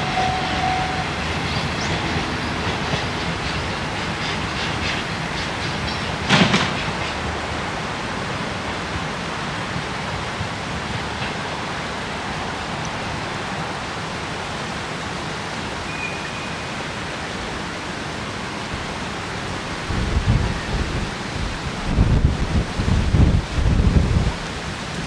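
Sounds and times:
steady outdoor hiss: 0.0s - 25.0s
wind buffeting microphone: 19.7s - 25.0s.

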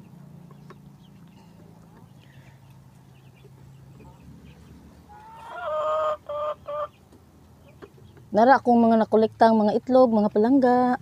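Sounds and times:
chicken calling: 1.8s - 7.9s.

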